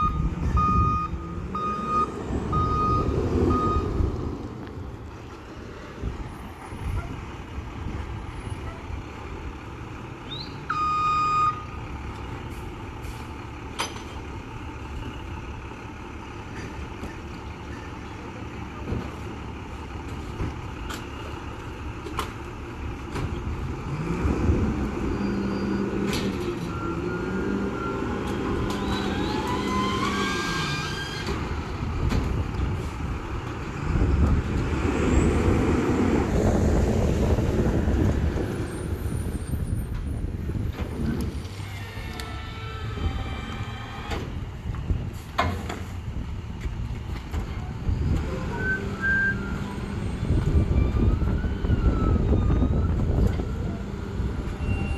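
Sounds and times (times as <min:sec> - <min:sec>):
diesel engine idling: 0:00.0 - 0:23.8
packer mechanism squealing: 0:41.5 - 0:44.4.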